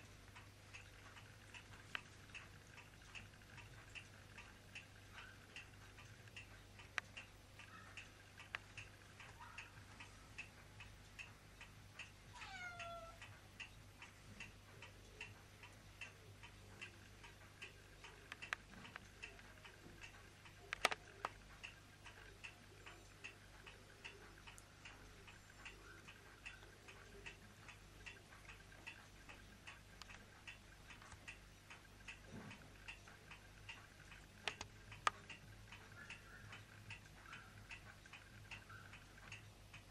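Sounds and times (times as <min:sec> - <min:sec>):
clock ticking: 0:00.0 - 0:39.9
kitten meowing: 0:12.4 - 0:13.2.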